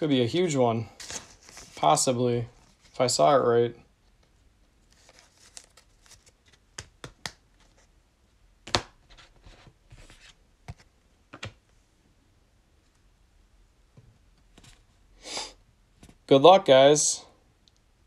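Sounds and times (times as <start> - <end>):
clicks and taps of cards: 6.7 - 7.4.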